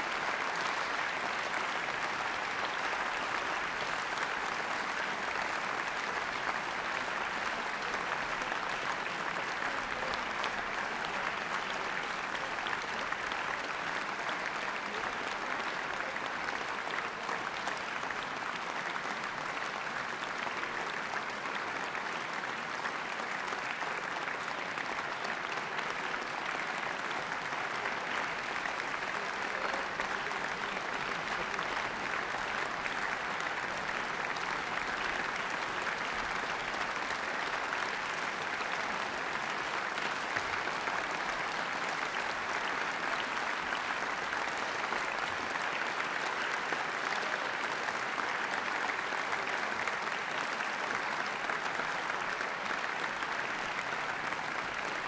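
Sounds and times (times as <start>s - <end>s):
audience applauding: 0.0s - 55.0s.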